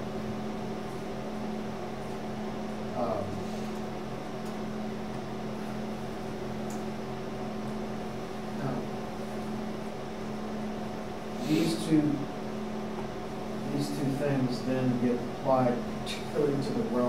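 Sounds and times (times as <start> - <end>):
ventilation fan hum: 0.0 - 17.0.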